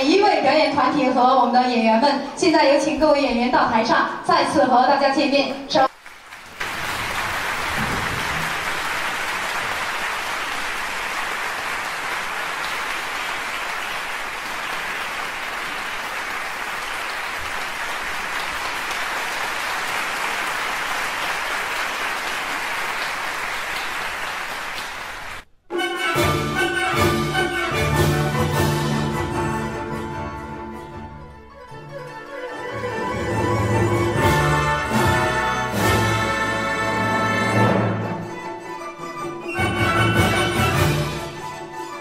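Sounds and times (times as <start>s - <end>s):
audience applauding: 5.9s - 25.5s
music: 25.7s - 42.0s.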